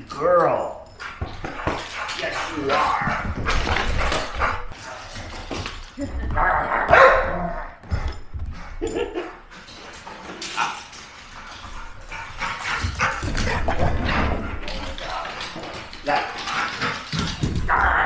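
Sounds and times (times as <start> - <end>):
dog barking and vocalizing: 6.3 - 7.8.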